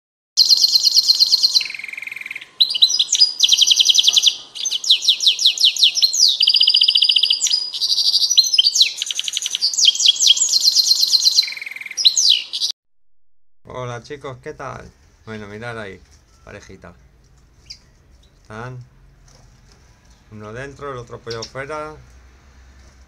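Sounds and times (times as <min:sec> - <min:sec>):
finch singing trills: 0:00.4 - 0:12.7, 0:17.5 - 0:18.8, 0:20.1 - 0:22.0.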